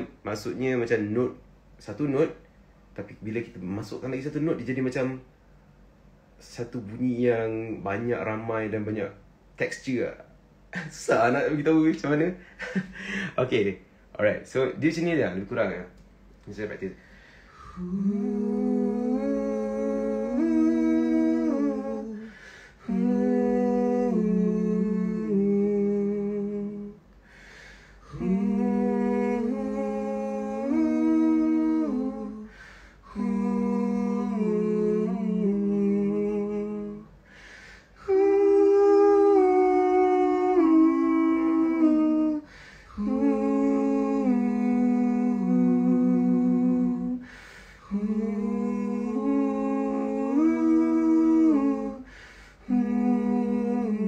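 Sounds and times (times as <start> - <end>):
man humming a melody: 17.6 - 27.0, 28.0 - 37.2, 38.0 - 54.0
quick breath: 27.2 - 28.1, 37.2 - 38.0, 47.2 - 47.8, 52.1 - 52.6.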